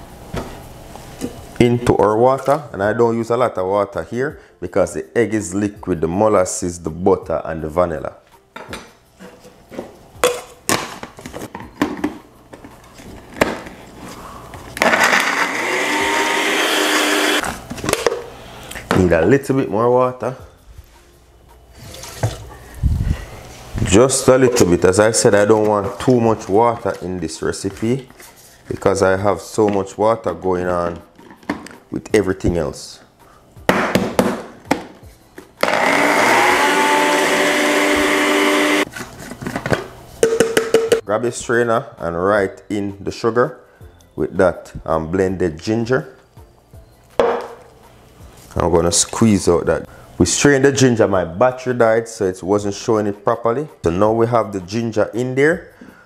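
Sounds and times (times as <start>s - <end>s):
blender whirring: 14.8s - 17.4s, 35.6s - 38.9s.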